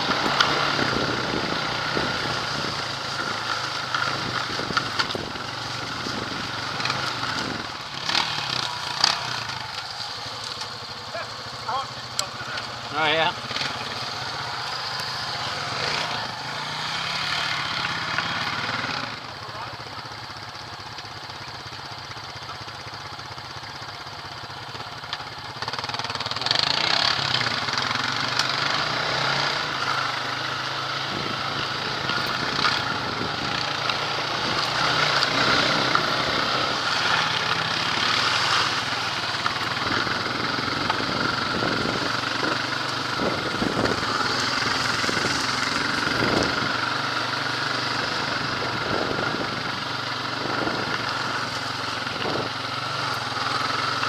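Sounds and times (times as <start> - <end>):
quad bike engine running: 0.0 - 54.0.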